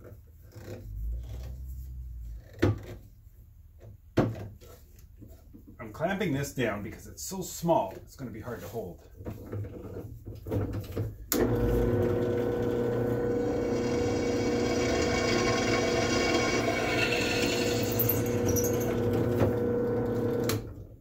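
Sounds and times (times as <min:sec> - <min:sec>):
drill press motor humming: 0:11.3 - 0:20.7
drill bit drilling steel: 0:11.4 - 0:20.5.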